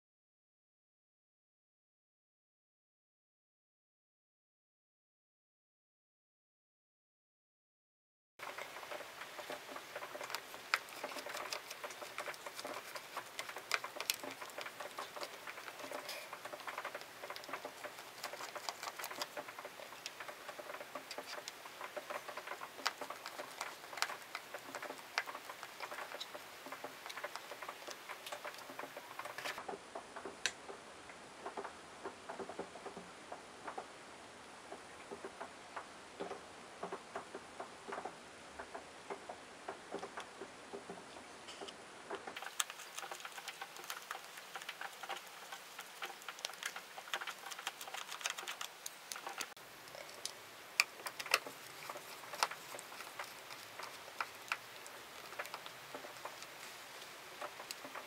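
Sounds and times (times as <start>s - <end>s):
rapid small clicks: 8.4s - 29.7s, 42.3s - 58.0s.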